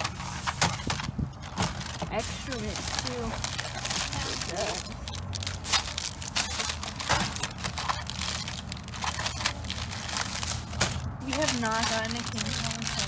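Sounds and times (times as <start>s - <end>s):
plastic wrappers crinkling: 0.0s - 13.0s.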